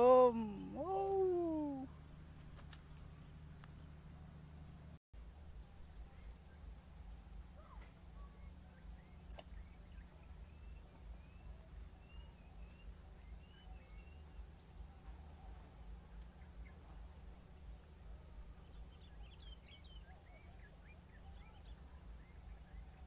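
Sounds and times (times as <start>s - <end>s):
low steady rumble: 0.0s - 23.0s
small bird chirps: 7.5s - 17.7s, 18.5s - 23.0s.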